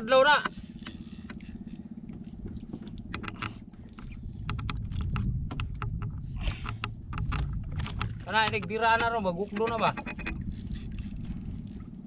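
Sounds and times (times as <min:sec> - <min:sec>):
fishing reel gears ticking: 0:00.3 - 0:03.6, 0:08.4 - 0:12.0.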